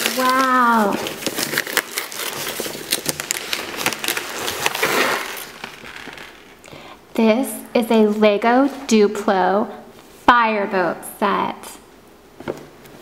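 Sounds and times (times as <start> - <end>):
paper crinkling and tearing: 0.0 - 6.6.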